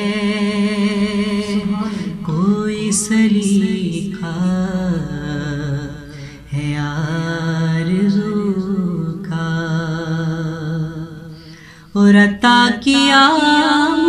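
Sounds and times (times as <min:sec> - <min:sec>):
man singing unaccompanied: 0:00.0 - 0:14.0.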